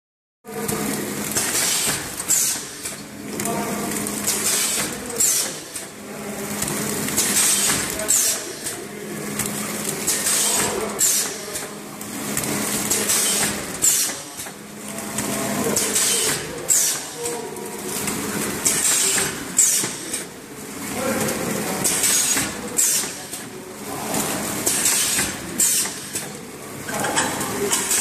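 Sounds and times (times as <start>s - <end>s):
sealer hiss and clack: 1.4s - 3.0s, 10.1s - 11.7s, 12.4s - 14.6s, 21.8s - 23.5s, 24.7s - 26.4s.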